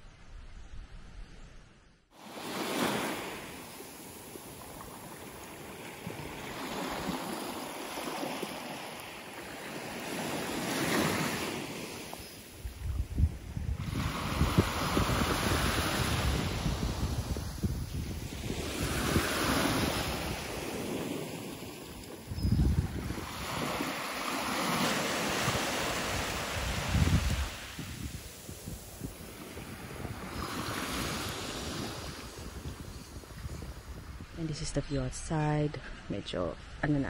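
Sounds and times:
small waves breaking on beach: 2.1 - 34.4
wind buffeting microphone: 12.5 - 24.0, 24.7 - 36.0.

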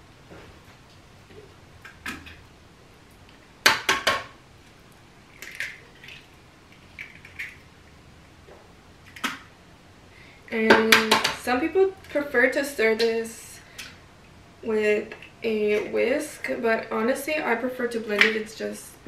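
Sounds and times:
eggshells crackling: 4.9 - 7.9.

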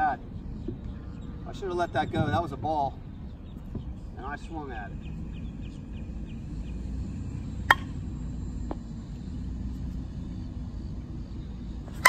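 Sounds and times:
steady low rumble: 0.0 - 12.0
bat hitting ball ping: 7.7 - 8.0.

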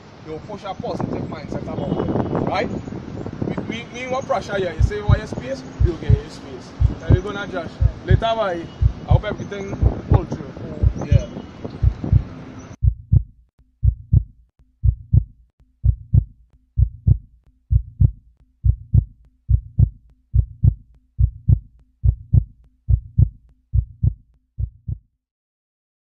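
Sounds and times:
heartbeat thumps: 4.8 - 25.2.

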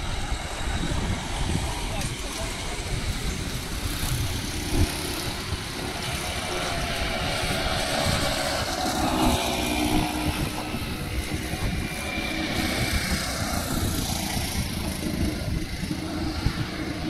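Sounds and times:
steady low traffic rumble: 0.0 - 17.0
motorcycle driving past: 3.5 - 17.0.

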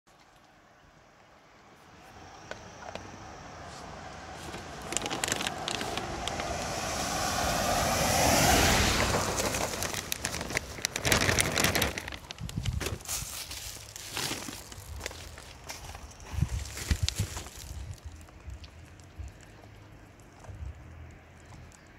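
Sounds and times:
vehicle passing on wet gravel: 3.3 - 21.9
footsteps crunching on gravel: 3.6 - 6.8, 9.0 - 20.8.

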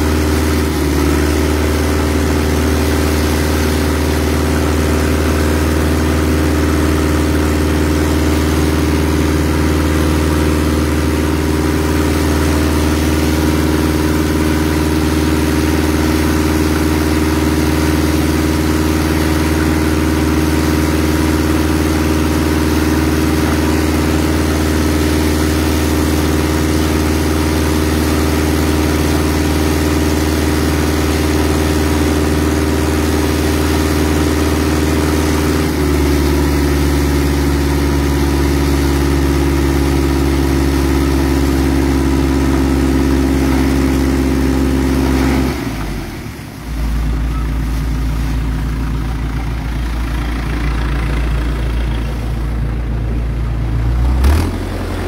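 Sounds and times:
boat engine running: 0.0 - 55.0
high-pressure water jet spraying: 0.0 - 55.0.

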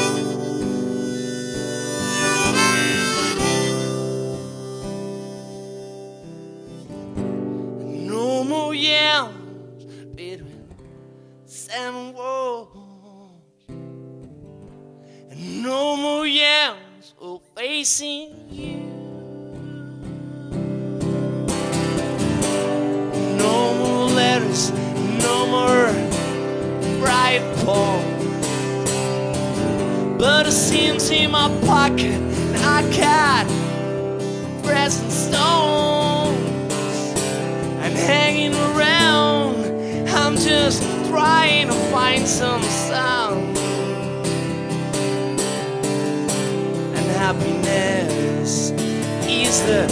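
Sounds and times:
high wavering melody line: 0.0 - 7.0
wavering lead melody: 0.0 - 7.2, 20.3 - 46.9
strummed acoustic guitar: 0.0 - 16.7, 17.6 - 49.9.

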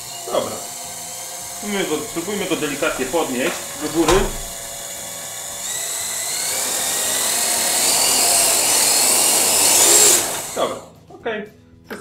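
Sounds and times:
quadcopter motors whining: 0.0 - 1.9, 4.7 - 10.8.

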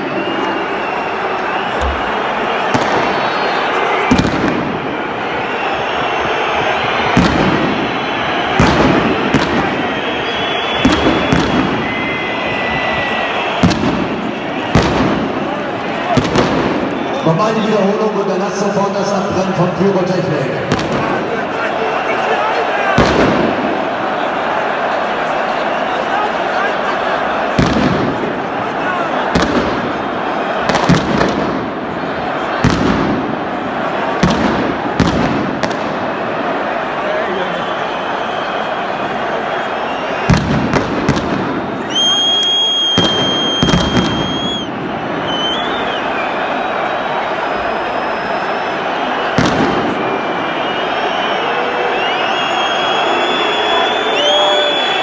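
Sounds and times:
stadium crowd noise: 0.0 - 55.0
firecracker bangs: 1.7 - 5.0, 7.0 - 17.1, 20.6 - 21.3, 22.9 - 23.8, 27.5 - 28.4, 29.3 - 31.8, 32.6 - 33.4, 34.1 - 36.2, 40.2 - 42.1, 42.8 - 45.3, 49.3 - 50.4.

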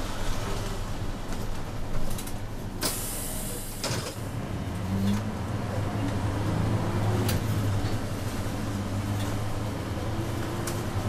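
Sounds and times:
bus engine humming: 0.0 - 11.0.

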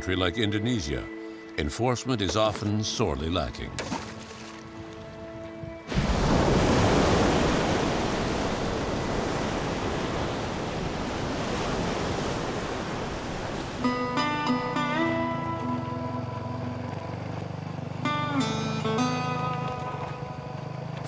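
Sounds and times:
surf crashing on rocks: 5.9 - 14.3
guitar music: 13.8 - 21.0.

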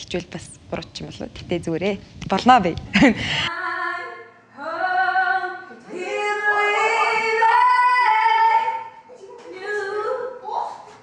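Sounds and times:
woman singing unaccompanied: 3.5 - 10.9.

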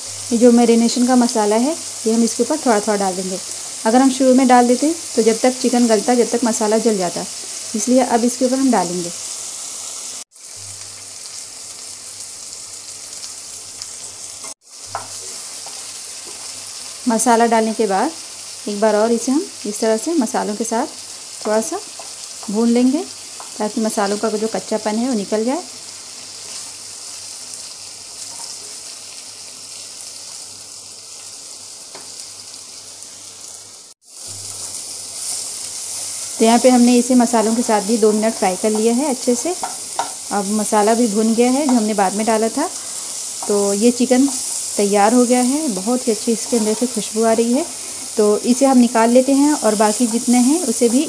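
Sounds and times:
meat sizzling in hot oil: 0.0 - 51.0
wooden spatula turning food: 34.5 - 48.2.

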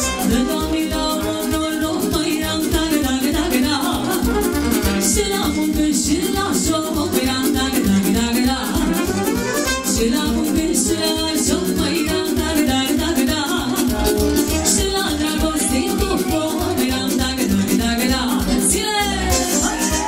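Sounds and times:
saxophone: 0.0 - 1.8, 4.0 - 5.6, 8.7 - 10.1, 18.5 - 20.0
folk dance band: 0.0 - 20.0
violin: 0.0 - 20.0.

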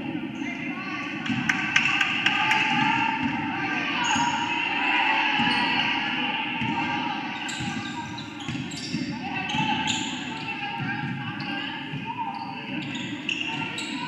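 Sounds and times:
crowd chatter: 0.0 - 14.0
basketball bouncing on court: 1.2 - 3.4, 6.6 - 14.0.

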